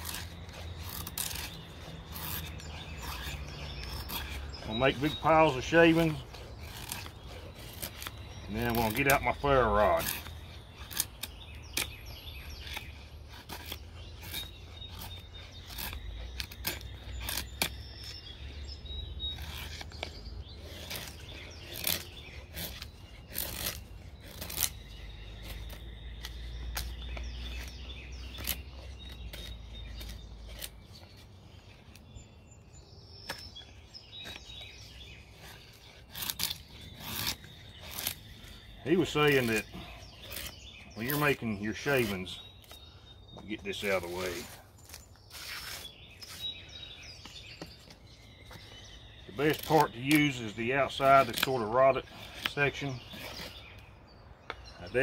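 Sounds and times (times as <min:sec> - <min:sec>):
knife scraping wood: 0:00.0 - 0:32.5, 0:33.2 - 0:55.0.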